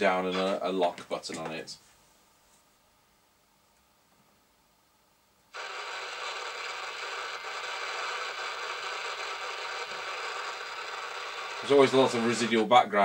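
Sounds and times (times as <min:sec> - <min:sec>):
radio static hiss: 0:05.6 - 0:12.9.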